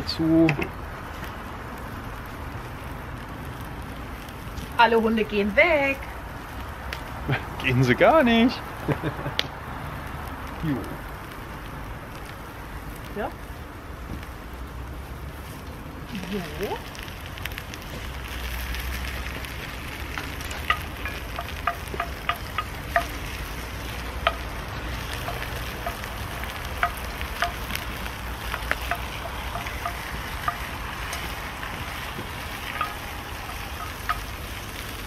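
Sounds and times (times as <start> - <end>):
meat and onions sizzling: 0.0 - 35.0
sharp clicks and pops: 6.5 - 7.2, 16.5 - 35.0
wooden spatula stirring meat: 19.0 - 35.0.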